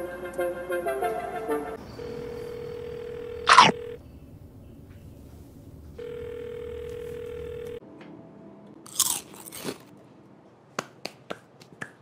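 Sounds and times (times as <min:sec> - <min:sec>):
steady telephone tone: 0:01.8 - 0:04.0, 0:06.0 - 0:07.8
crunchy bites of food: 0:08.9 - 0:09.9.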